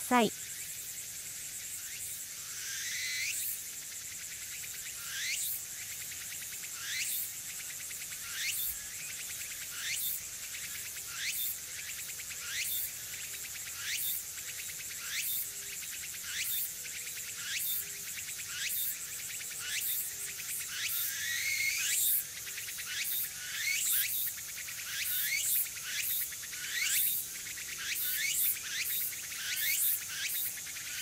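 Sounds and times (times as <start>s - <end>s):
high background hiss: 0.0s - 31.0s
cicada singing: 24.9s - 31.0s.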